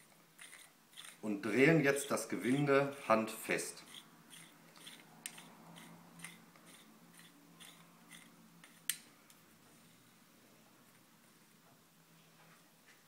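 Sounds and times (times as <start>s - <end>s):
screw cap thread ticks and scrapes: 0.4s - 1.2s, 3.8s - 9.0s.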